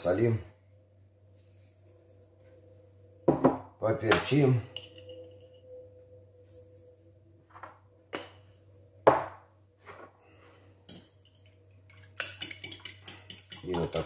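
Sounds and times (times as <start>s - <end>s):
fork beating eggs in glass bowl: 10.9s - 14.0s.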